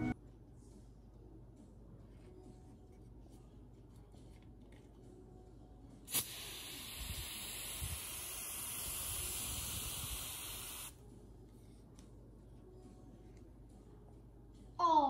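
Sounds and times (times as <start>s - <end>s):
aerosol spray can hissing: 6.1s - 11.0s.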